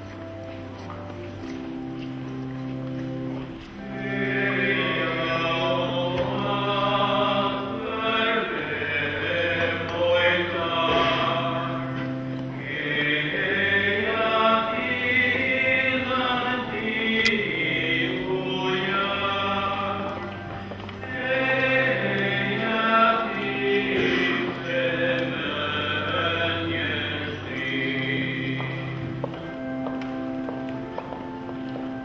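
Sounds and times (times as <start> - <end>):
low held accompaniment notes: 0.0 - 32.0
choir singing a hymn: 3.7 - 29.3.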